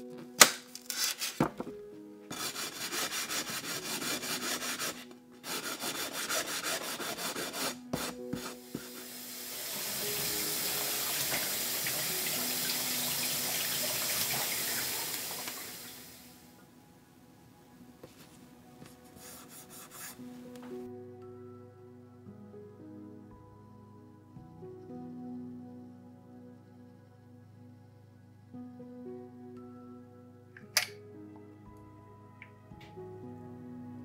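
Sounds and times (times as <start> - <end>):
soft background music: 0.0 - 34.0
hose spraying water on glass: 8.4 - 16.3.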